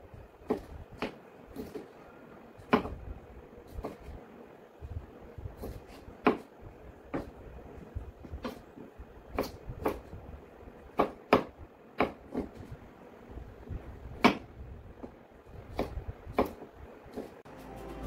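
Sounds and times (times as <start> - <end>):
knife chopping on wooden board: 0.4 - 1.9, 2.7 - 3.0, 5.6 - 6.5, 9.4 - 10.1, 11.0 - 12.7, 14.2 - 14.4, 15.7 - 17.4.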